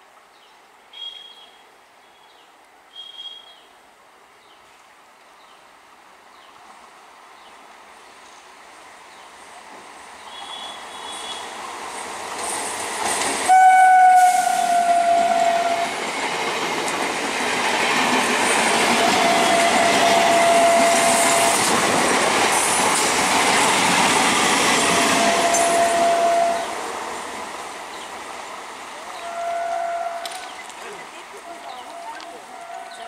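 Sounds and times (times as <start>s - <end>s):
train rushing past with wheel clatter: 6.4s - 33.0s
train horn blast: 10.3s - 11.5s, 13.5s - 16.0s, 18.8s - 21.9s, 23.7s - 26.9s, 29.1s - 30.6s, 31.7s - 33.0s.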